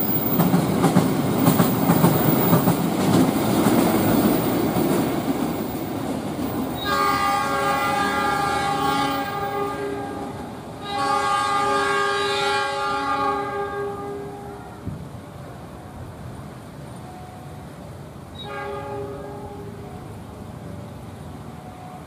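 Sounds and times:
train rumbling: 0.0 - 22.0
train horn blasts: 6.8 - 15.0, 18.3 - 20.2.

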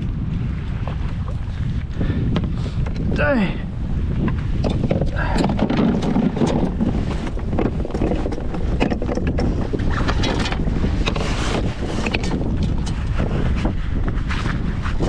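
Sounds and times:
wind buffeting microphone: 0.0 - 15.0
tackle clicks and knocks: 4.2 - 13.2.

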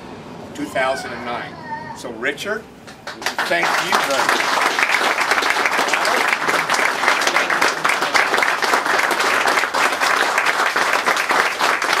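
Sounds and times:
crowd applauding: 2.9 - 12.0.

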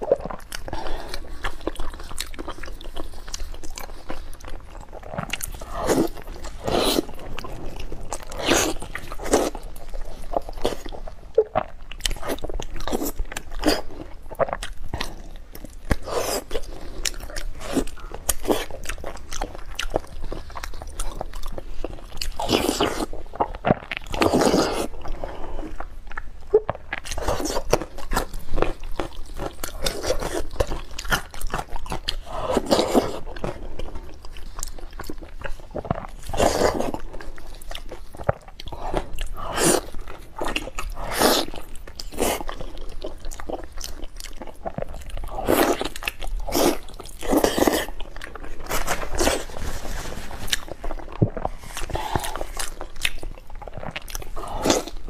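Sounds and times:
wet chewing and biting: 0.0 - 55.0
smacking and sucking: 44.7 - 55.0.

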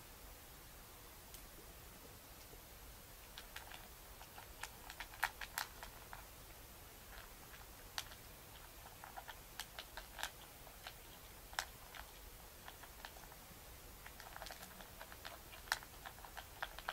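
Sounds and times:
cat chewing food: 3.2 - 16.9
food clicking on metal bowl: 3.3 - 6.3, 7.1 - 13.4, 14.0 - 16.9.

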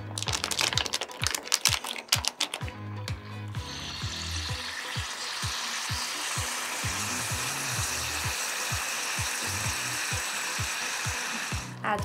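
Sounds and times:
background music with kick drum: 0.0 - 12.0
sizzling hiss of heating pack: 3.6 - 11.8.

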